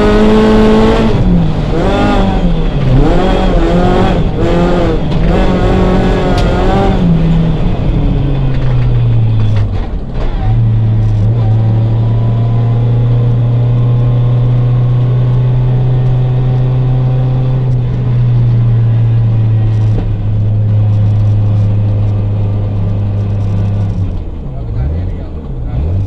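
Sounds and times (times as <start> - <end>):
car engine droning: 0.0 - 26.0.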